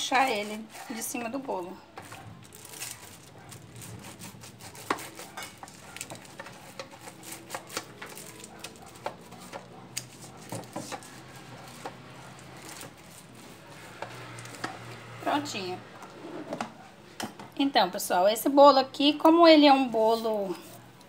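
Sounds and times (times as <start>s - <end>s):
pastry brush dabbing and scraping: 0.0s - 15.0s.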